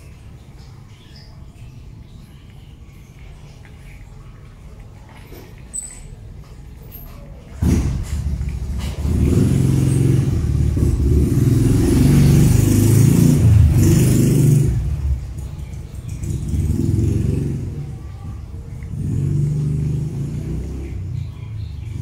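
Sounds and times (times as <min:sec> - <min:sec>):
loud vehicle engine running: 0:07.6 - 0:22.0.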